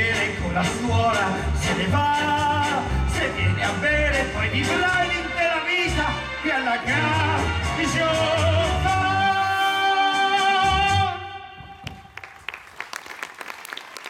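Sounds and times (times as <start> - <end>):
song with band: 0.0 - 11.8
audience clapping: 11.8 - 14.0.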